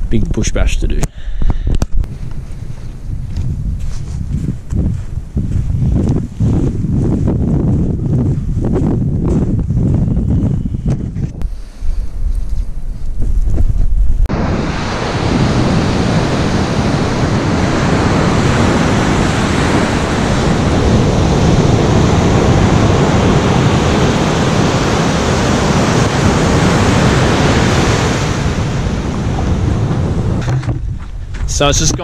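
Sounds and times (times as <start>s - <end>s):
wind on microphone: 0.0s - 32.0s
ocean surf breaking on beach: 14.3s - 30.4s.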